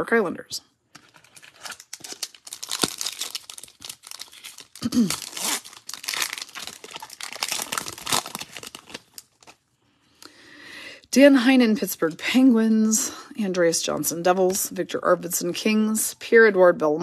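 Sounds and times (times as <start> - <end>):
foil wrapper crinkling and tearing: 1.0 - 9.6.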